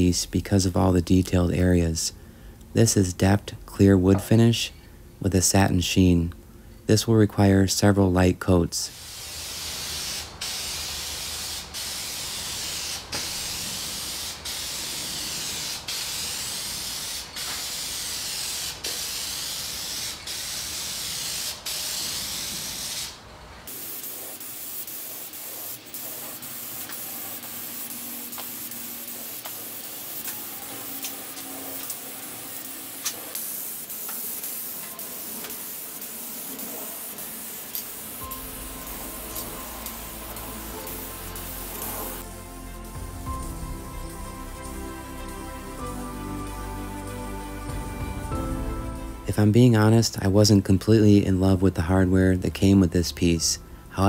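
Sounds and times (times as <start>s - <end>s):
aerosol spray can hissing: 8.9s - 47.2s.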